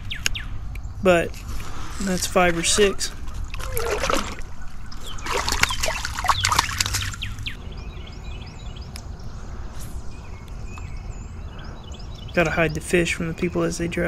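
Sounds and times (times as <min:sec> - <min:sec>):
birds chirping: 0:00.0 - 0:14.0
splashing in shallow water: 0:02.9 - 0:07.5.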